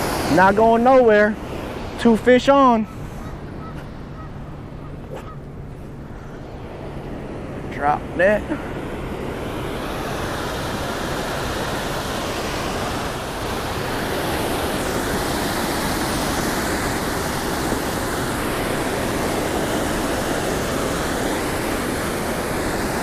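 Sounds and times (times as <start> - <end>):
river water pouring over dam: 0.0 - 2.6, 9.3 - 23.0.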